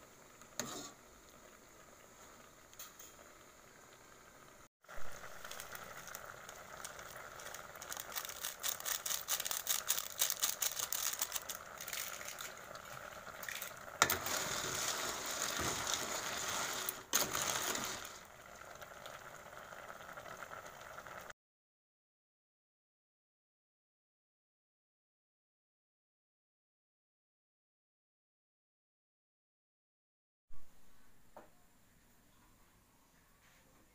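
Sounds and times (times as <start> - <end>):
pot boiling with bubbling: 0.0 - 21.3.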